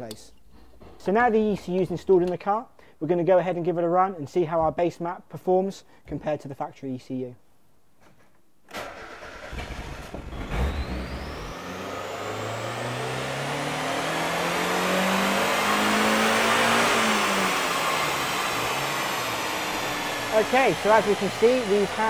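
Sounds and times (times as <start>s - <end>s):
car engine revving with whine: 9.5s - 22.0s.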